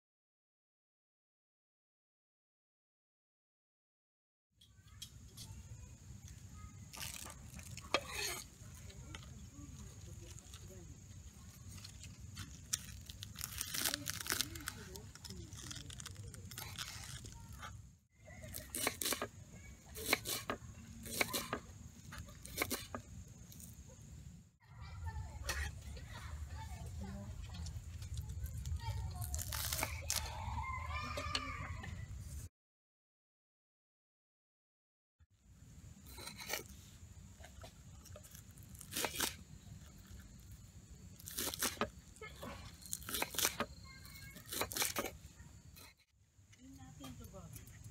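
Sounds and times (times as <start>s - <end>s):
knife chopping on wooden board: 18.7s - 19.3s, 20.0s - 21.6s, 22.2s - 23.0s.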